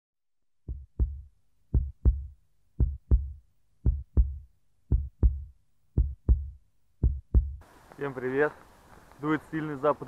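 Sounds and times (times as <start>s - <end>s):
heartbeat thumps: 0.6s - 7.6s.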